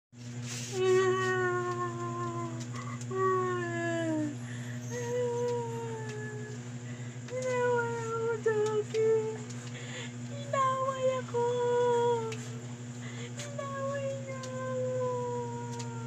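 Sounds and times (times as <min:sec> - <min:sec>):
steady low hum: 0:00.2 - 0:16.0
dog whining: 0:02.6 - 0:06.6.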